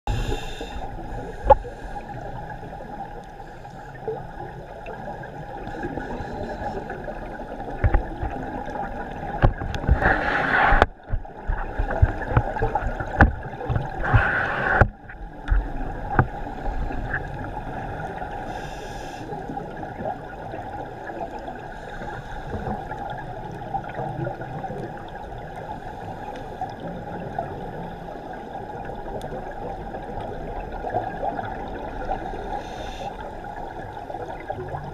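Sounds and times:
muffled underwater noise: 0:00.1 - 0:34.9
exhaled regulator bubbles: 0:04.9 - 0:18.4.

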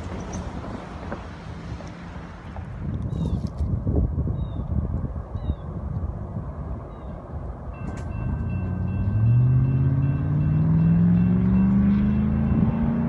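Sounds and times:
diesel locomotives rumbling: 0:00.0 - 0:03.4, 0:04.0 - 0:13.0
engine drone rising in pitch: 0:07.7 - 0:13.0.

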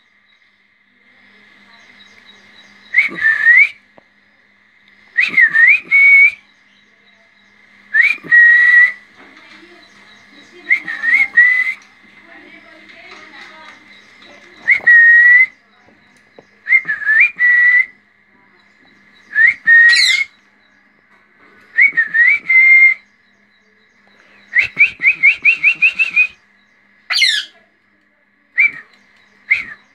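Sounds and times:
whistled phrases: 0:02.9 - 0:03.8, 0:05.2 - 0:06.5, 0:07.9 - 0:09.1, 0:10.3 - 0:11.9, 0:14.3 - 0:15.8, 0:16.6 - 0:18.0, 0:19.3 - 0:20.3, 0:21.7 - 0:23.0, 0:24.5 - 0:26.4, 0:28.5 - 0:29.9
parakeet squawks: 0:19.8 - 0:20.3, 0:27.1 - 0:27.6.

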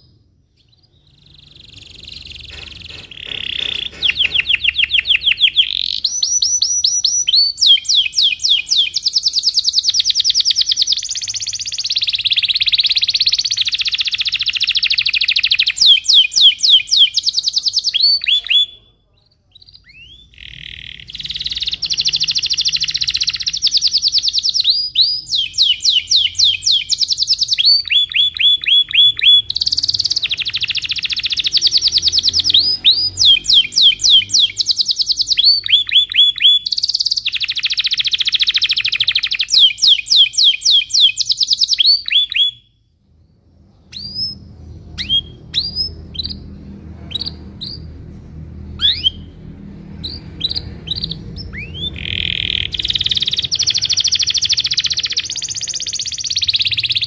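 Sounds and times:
canary singing trills: 0:00.0 - 0:57.0
faint low hum: 0:42.0 - 0:57.0.

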